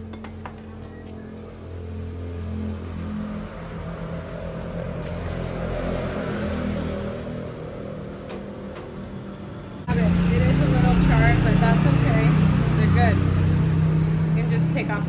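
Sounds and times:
vehicle engine running: 7.5s - 15.0s.

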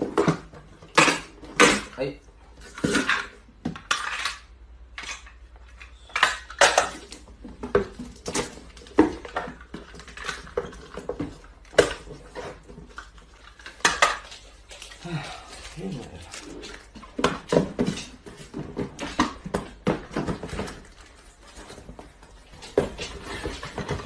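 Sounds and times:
cardboard parcels handled: 7.0s - 24.0s.

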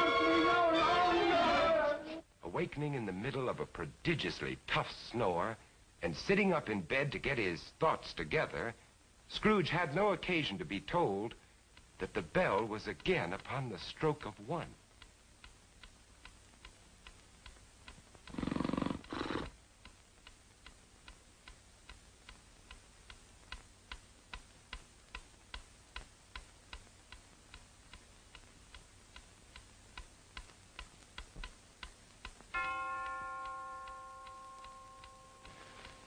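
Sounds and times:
mantel clock ticking: 9.9s - 18.4s, 19.8s - 36.0s
loud rasping snore: 18.3s - 19.5s
clock bell striking: 32.6s - 36.0s.

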